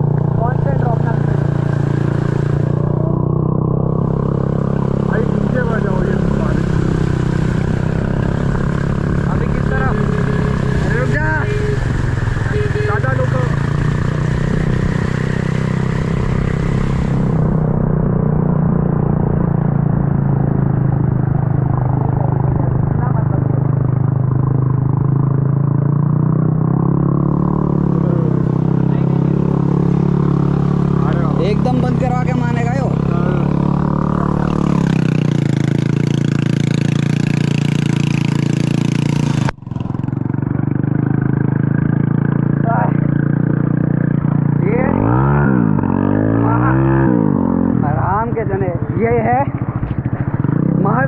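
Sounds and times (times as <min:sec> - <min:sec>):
wind and road hiss: 0:00.0 - 0:22.8
motorcycle engine running: 0:00.0 - 0:51.0.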